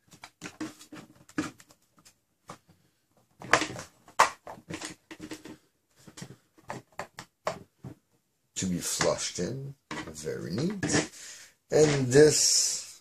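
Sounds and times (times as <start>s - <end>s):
plastic parts clicking and knocking: 0.0s - 8.2s, 9.8s - 11.2s.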